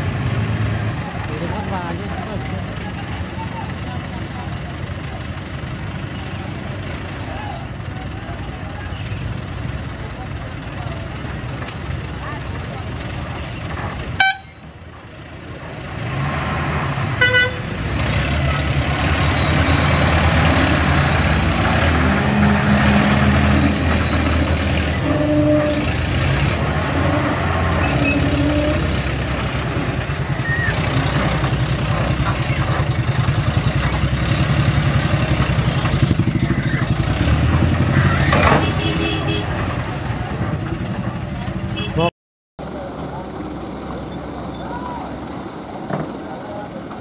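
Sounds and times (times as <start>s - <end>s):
heavy diesel engines running: 0.0s - 47.0s
horn toot: 14.2s - 14.6s, 17.2s - 17.8s, 25.0s - 26.0s, 38.3s - 39.6s.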